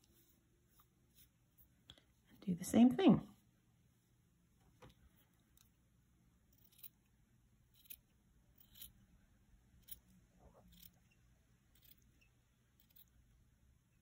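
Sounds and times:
scissors snipping thread: 0:06.5 - 0:07.1, 0:07.8 - 0:09.0, 0:09.8 - 0:11.0, 0:11.8 - 0:13.2.

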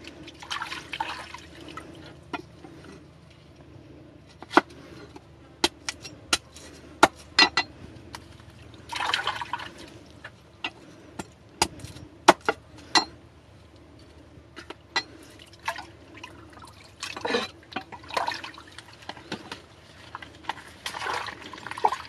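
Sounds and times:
stream trickling: 0:00.0 - 0:02.3, 0:08.4 - 0:10.4, 0:15.2 - 0:22.0.

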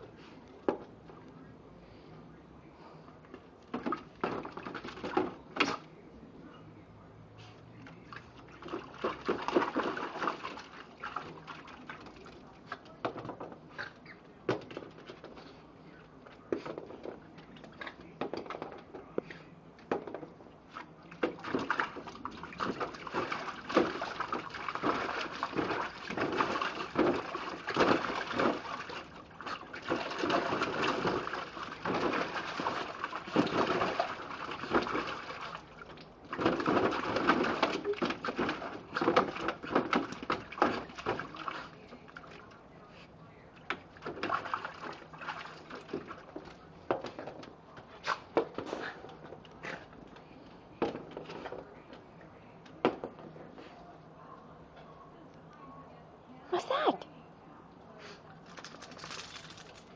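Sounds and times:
dog splashing in water: 0:07.8 - 0:13.4, 0:21.1 - 0:42.6, 0:43.8 - 0:47.2.

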